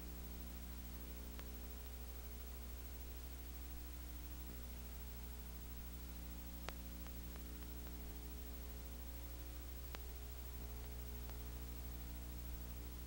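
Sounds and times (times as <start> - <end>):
electrical hum and hiss: 0.0 - 13.0
faint clicks: 1.3 - 2.0, 6.6 - 8.2, 9.8 - 11.5.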